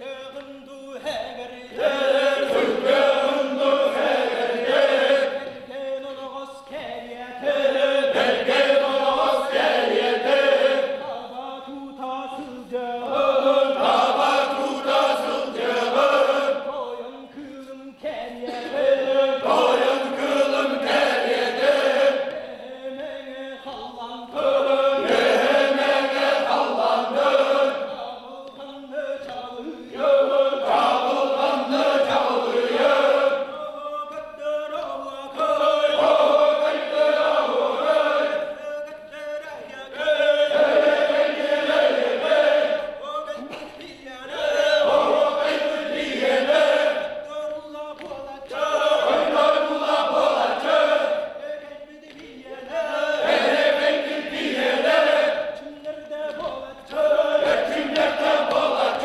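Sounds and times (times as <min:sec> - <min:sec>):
group of men chanting: 0:01.7 - 0:05.7, 0:07.4 - 0:11.2, 0:12.3 - 0:17.0, 0:18.3 - 0:23.0, 0:24.2 - 0:28.0, 0:29.6 - 0:33.6, 0:35.2 - 0:38.6, 0:39.6 - 0:43.0, 0:44.3 - 0:47.2, 0:48.5 - 0:51.4, 0:52.4 - 0:55.7, 0:56.4 - 0:59.0.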